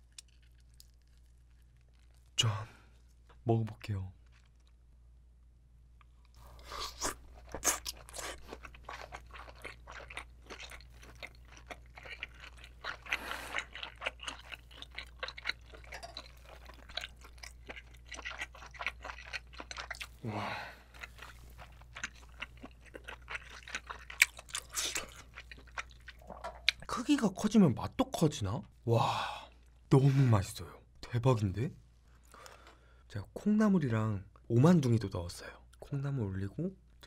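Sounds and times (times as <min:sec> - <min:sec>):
close chewing with wet smacks: 0:06.9 - 0:20.2, 0:20.9 - 0:26.9.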